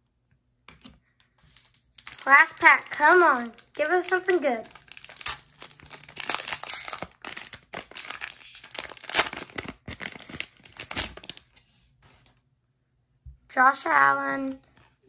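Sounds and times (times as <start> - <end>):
plastic wrapper crinkling and tearing: 1.4 - 11.6.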